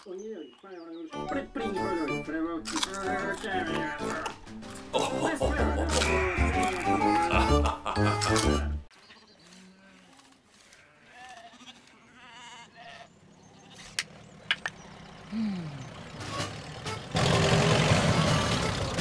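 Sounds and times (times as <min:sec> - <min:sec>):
faint sheep bleats: 0:09.0 - 0:13.8.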